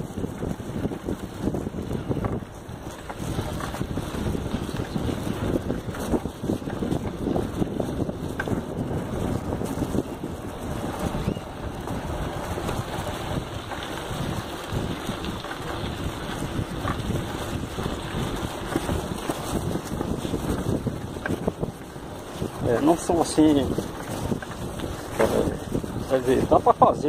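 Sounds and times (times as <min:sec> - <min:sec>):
bicycle rattling on rough trail: 0:00.0 - 0:27.0
wind buffeting microphone: 0:00.0 - 0:27.0.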